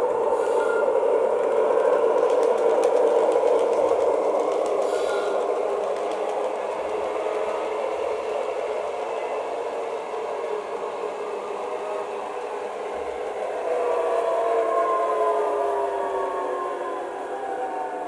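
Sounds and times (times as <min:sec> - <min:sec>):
model train drive whir: 0:00.0 - 0:13.7
electric train running sound: 0:00.0 - 0:18.0.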